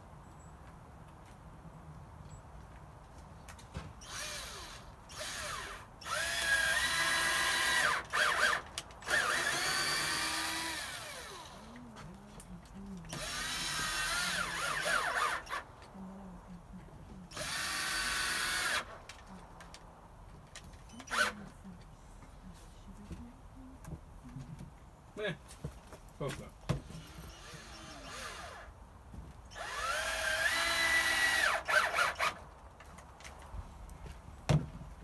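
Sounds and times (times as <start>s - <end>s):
power drill whining: 4.0s - 11.8s, 13.1s - 15.7s, 17.3s - 19.0s, 21.0s - 21.4s, 27.0s - 28.7s, 29.5s - 32.4s.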